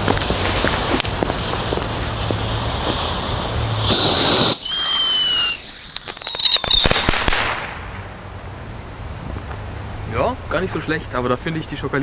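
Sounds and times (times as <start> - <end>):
firework hissing: 0.0 - 8.0
crackling sparks: 0.0 - 8.4
high falling whistle: 3.8 - 7.1.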